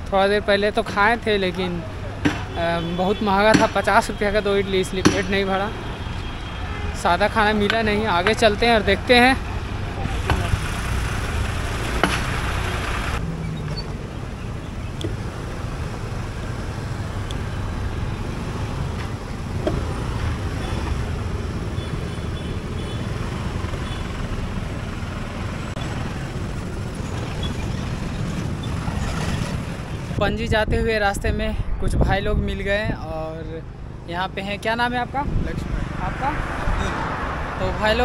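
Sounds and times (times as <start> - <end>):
cars passing: 0.0 - 30.2, 33.3 - 38.0
motor scooters: 8.7 - 30.2.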